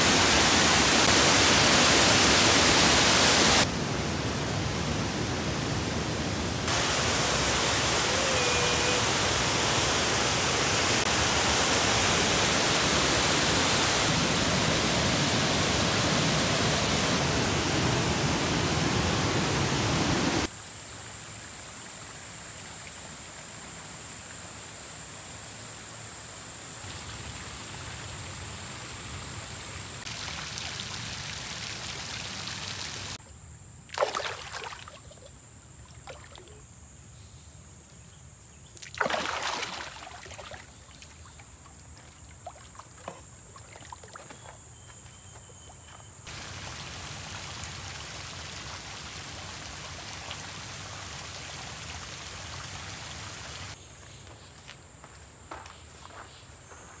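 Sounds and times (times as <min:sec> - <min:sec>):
running water: 0:00.0 - 0:20.5, 0:30.1 - 0:33.2, 0:38.8 - 0:44.6, 0:46.2 - 0:53.8
water splashes: 0:30.1 - 0:33.2, 0:33.9 - 0:36.6, 0:38.8 - 0:45.0, 0:45.7 - 0:53.8.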